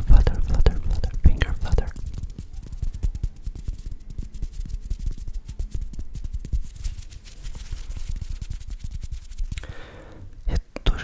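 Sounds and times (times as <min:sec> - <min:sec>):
fingers fluttering near microphone: 0:00.0 - 0:10.0.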